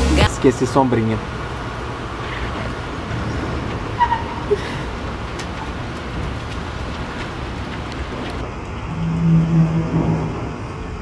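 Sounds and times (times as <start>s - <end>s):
rain falling on wet pavement: 1.6s - 8.8s.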